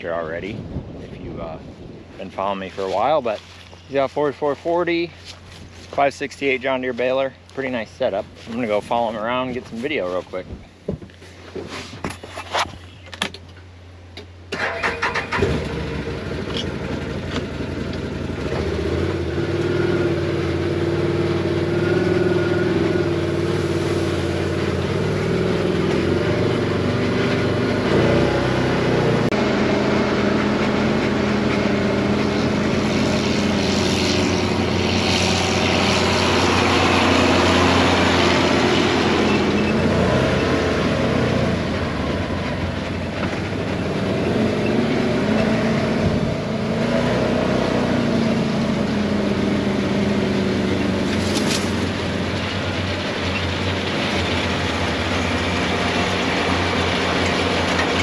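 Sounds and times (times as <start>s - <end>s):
vehicle engine running: 0.0s - 58.0s
vehicle engine starting: 14.4s - 58.0s.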